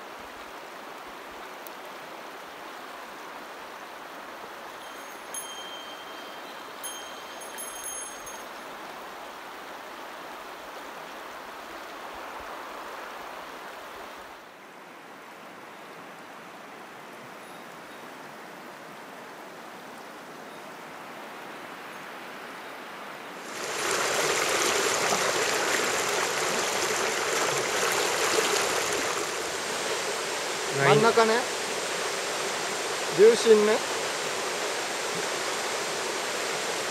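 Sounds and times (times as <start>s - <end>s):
river water rushing over stones: 23.3s - 36.9s.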